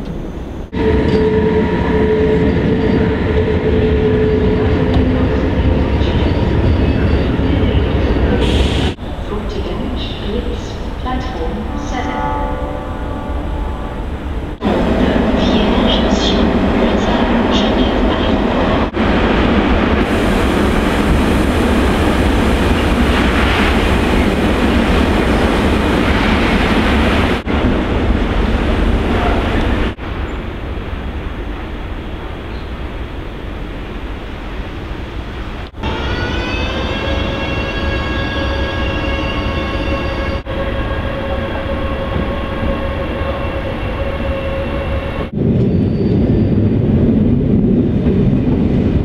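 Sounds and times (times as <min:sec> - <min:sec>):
train rumbling: 0:00.0 - 0:49.0
locomotive drive whine: 0:12.8 - 0:49.0.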